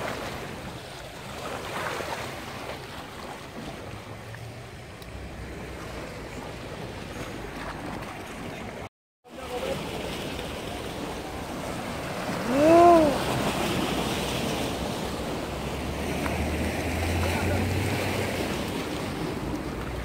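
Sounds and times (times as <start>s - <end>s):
waves washing on rocky shore: 0.0s - 20.0s
person shouting: 12.4s - 13.3s.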